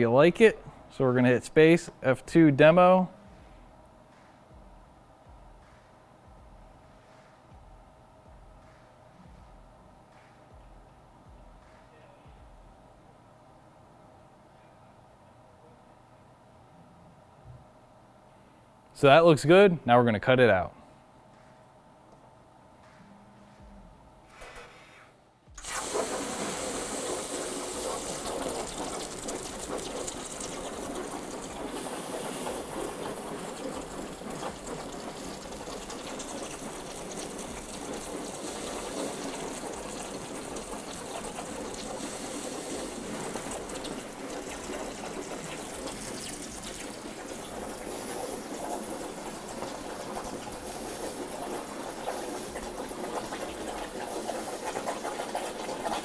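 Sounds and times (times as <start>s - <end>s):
plasma cutter hissing: 25.6s - 29.2s.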